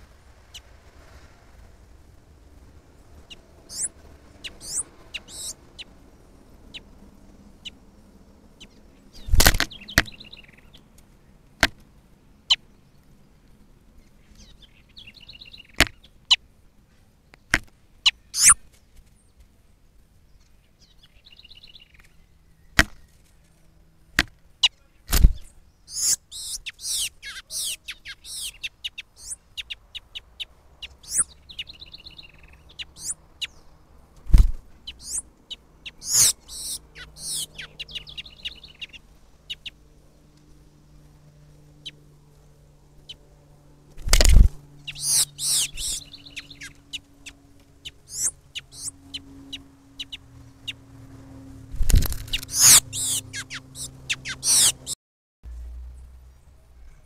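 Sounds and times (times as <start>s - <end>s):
high bird chirps: 3.2s - 5.9s, 6.6s - 6.9s, 8.6s - 10.8s, 14.3s - 16.1s, 18.1s - 18.6s, 24.6s - 33.8s, 34.8s - 39.9s, 44.7s - 50.8s, 52.2s - 55.0s.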